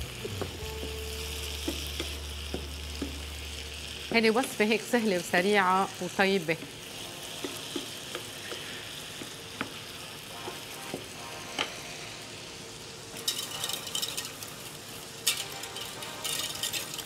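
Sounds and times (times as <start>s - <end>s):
vegetables sizzling in a pan: 0.0s - 17.0s
wooden spatula knocking on pan: 1.7s - 3.2s, 7.4s - 9.8s
utensil scraping a saucepan: 15.2s - 17.0s.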